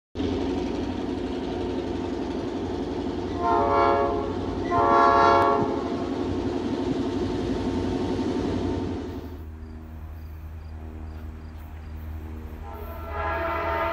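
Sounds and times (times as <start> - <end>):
train rumbling: 0.2 - 13.9
locomotive air horn: 3.3 - 6.2, 12.0 - 13.9.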